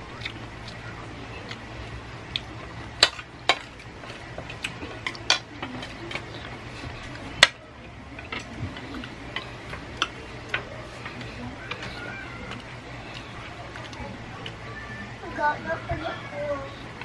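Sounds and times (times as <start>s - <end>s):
chopsticks tapping: 2.3s - 14.6s.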